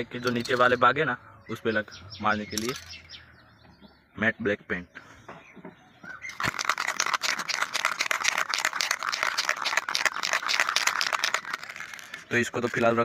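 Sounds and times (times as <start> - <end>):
spray-paint can rattling: 6.3 - 13.0.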